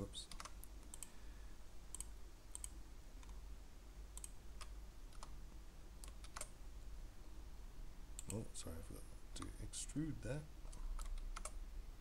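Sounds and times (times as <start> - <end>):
faint low hum: 0.0 - 12.0
keyboard and mouse clicks: 0.3 - 1.2, 1.9 - 3.4, 4.1 - 5.4, 6.0 - 6.5, 8.2 - 8.4, 10.7 - 11.6.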